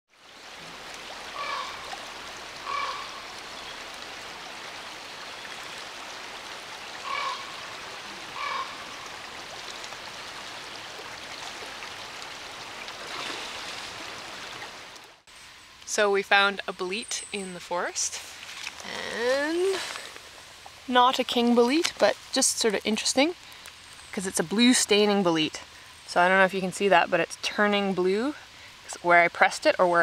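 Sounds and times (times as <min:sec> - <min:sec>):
running water: 0:00.1 - 0:30.0
short pitched animal calls: 0:02.6 - 0:03.2, 0:07.0 - 0:08.9.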